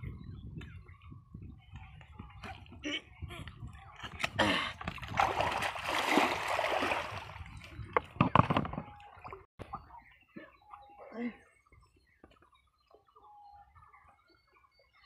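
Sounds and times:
water splashing and sloshing: 0:03.7 - 0:09.8.

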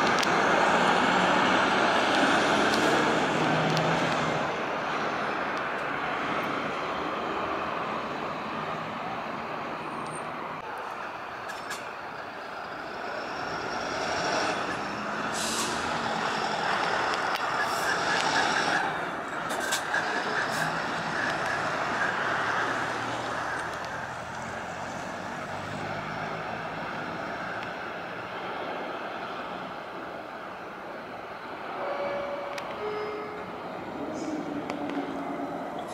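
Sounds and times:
bus diesel engines running: 0:00.0 - 0:35.9
street traffic: 0:00.0 - 0:35.9
air brake hiss: 0:15.3 - 0:15.9.

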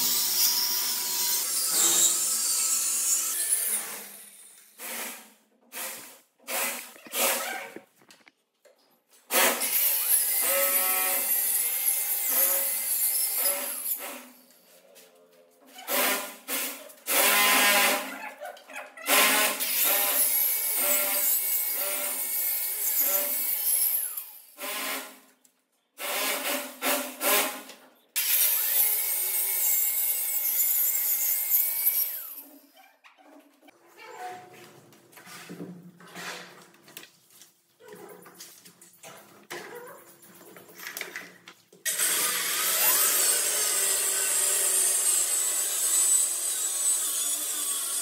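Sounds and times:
power saw cutting plywood: 0:00.0 - 0:07.8, 0:15.9 - 0:18.1, 0:41.9 - 0:48.0.

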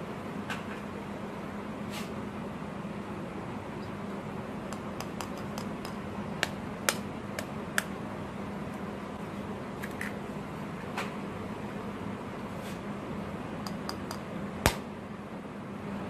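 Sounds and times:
egg knocking on ceramic bowl: 0:04.7 - 0:07.9, 0:13.7 - 0:14.2
eggshell clicks: 0:04.7 - 0:07.9, 0:13.7 - 0:14.8.

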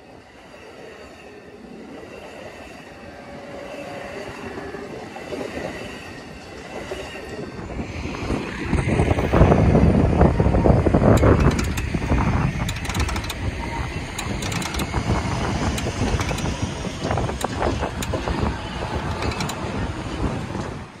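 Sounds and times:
wind on microphone: 0:04.1 - 0:21.0
road traffic rumbling: 0:07.8 - 0:21.0
light clicks: 0:11.1 - 0:18.4.

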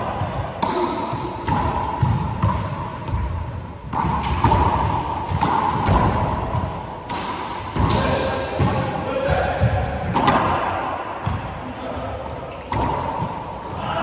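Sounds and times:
sneakers squeaking on floor: 0:01.5 - 0:03.3, 0:12.0 - 0:13.9.

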